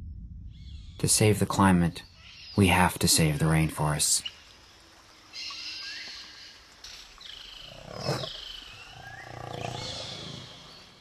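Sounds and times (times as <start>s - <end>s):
birds calling in rising whistles: 7.2s - 11.0s
big cat growling: 7.6s - 11.0s.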